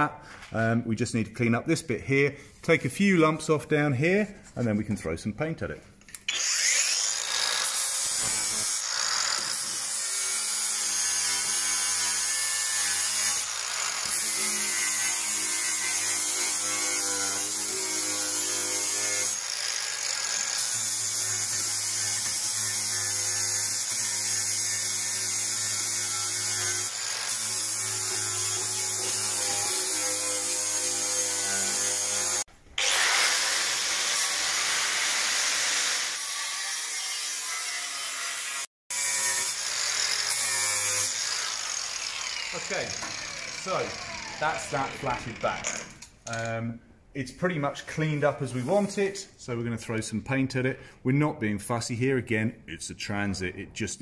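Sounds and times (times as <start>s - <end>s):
angle grinder grinding steel: 6.2s - 46.2s.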